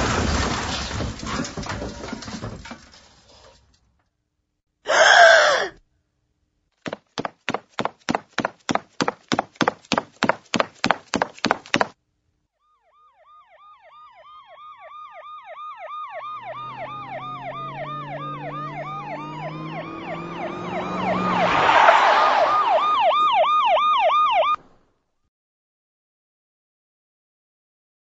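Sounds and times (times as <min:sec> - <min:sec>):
quick footsteps: 0:06.8 - 0:12.0
fast yelping siren: 0:12.7 - 0:24.6
wailing sirens: 0:12.7 - 0:24.6.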